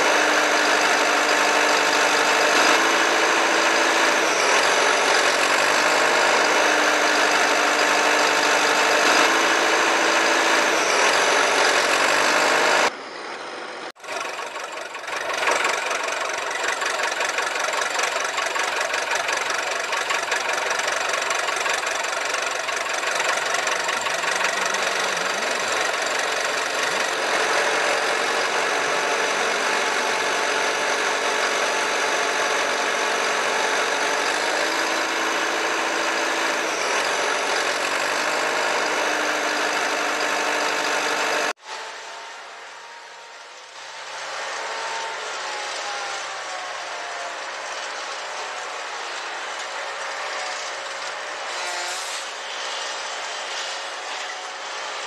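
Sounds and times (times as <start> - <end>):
vehicle engine running: 0.0 - 41.6.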